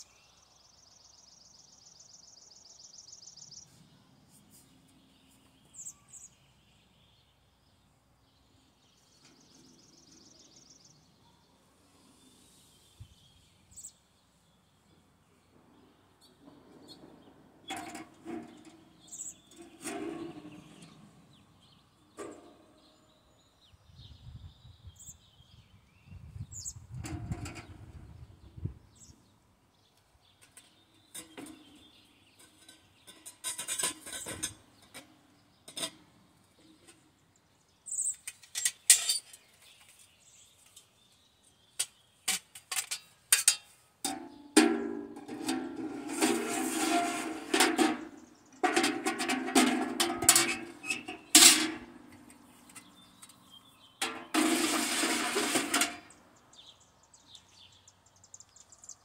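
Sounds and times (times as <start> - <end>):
metal stove clinking: 42.3 - 53.3.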